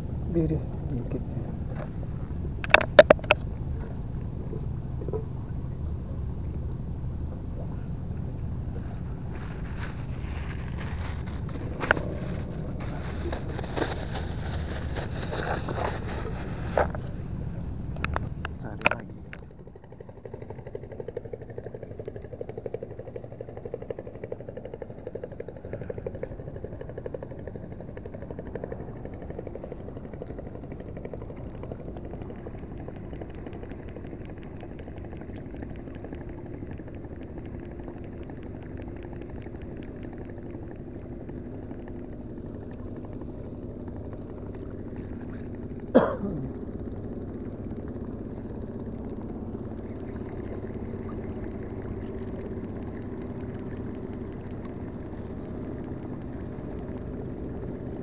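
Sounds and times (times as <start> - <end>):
fishing reel gears whirring: 17.9 - 58.0.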